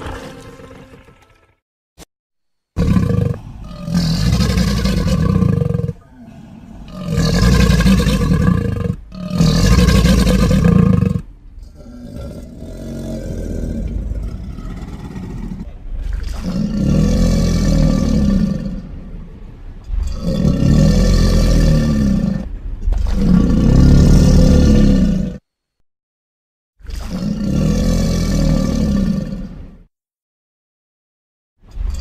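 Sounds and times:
creature growling: 2.8 - 19.0, 19.8 - 25.4
creature roaring: 2.8 - 19.0, 19.9 - 25.4, 26.9 - 29.7.

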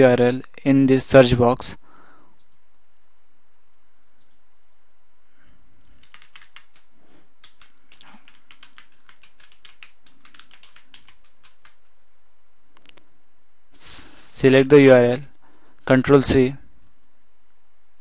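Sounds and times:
computer keyboard typing: 5.8 - 11.9.

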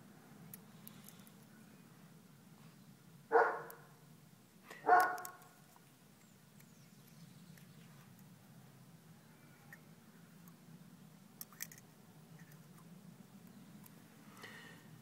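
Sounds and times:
dog barking: 3.3 - 3.8, 4.8 - 5.3.

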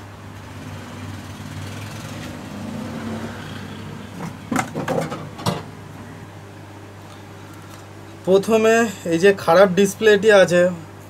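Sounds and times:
steady low hum: 0.0 - 11.0
sharp clicks and knocks: 4.2 - 5.7.

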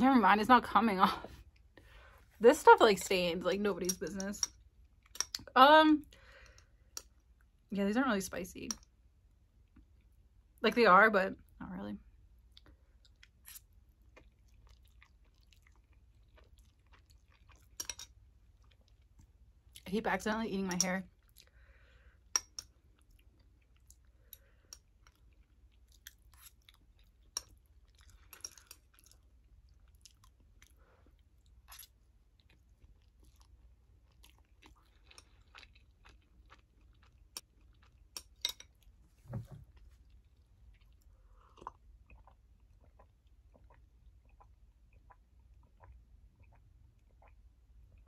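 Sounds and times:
person chewing noodles: 12.4 - 19.8, 21.2 - 38.9, 40.0 - 48.0.

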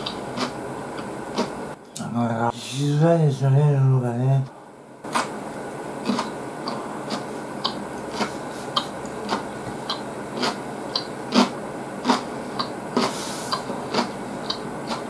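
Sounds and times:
person chewing noodles: 0.0 - 1.7, 6.0 - 15.0.

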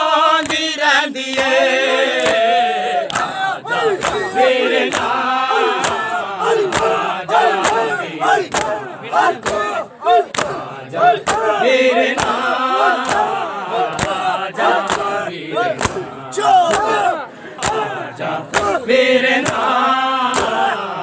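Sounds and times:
men chanting together: 0.0 - 21.0
hands slapping bare chests: 0.4 - 0.6, 2.2 - 2.4, 3.0 - 15.2, 15.8 - 18.8, 19.4 - 20.8.

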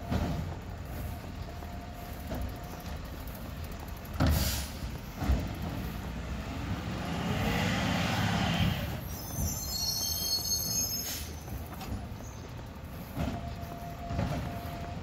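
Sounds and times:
high squeal: 8.7 - 11.6.

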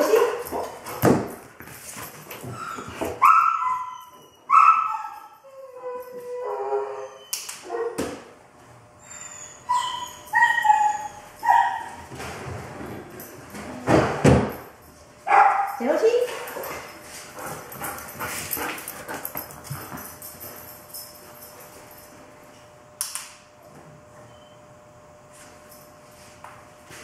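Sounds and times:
dog yipping and whining: 2.5 - 7.9, 9.0 - 12.0.

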